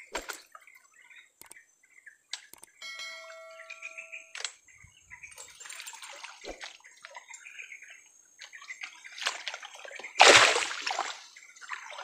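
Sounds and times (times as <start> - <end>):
water sloshing and splashing: 5.2 - 12.0
loud sudden splash: 10.2 - 11.1.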